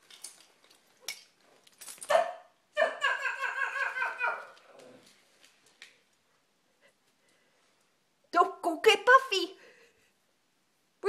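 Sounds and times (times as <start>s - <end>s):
small dog barking: 2.1s - 3.1s.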